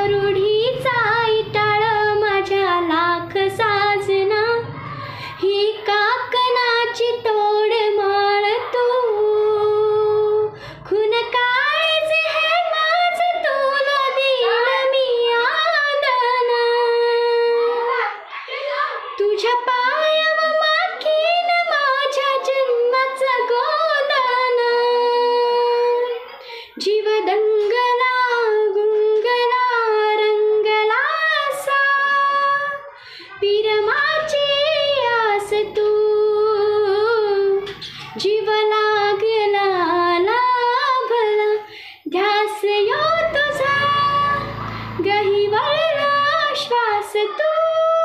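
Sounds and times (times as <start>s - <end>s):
woman singing solo: 26.8s - 48.0s.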